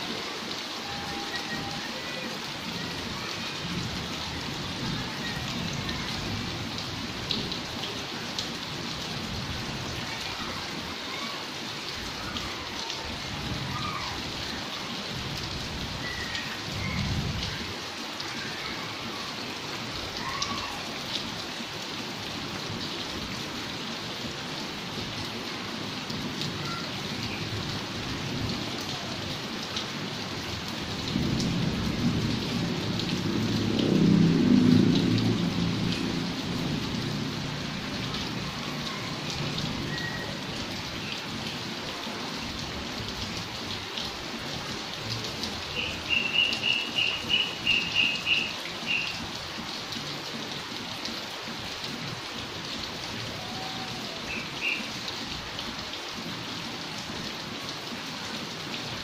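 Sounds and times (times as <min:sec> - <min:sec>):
heavy rain: 0:00.0 - 0:59.0.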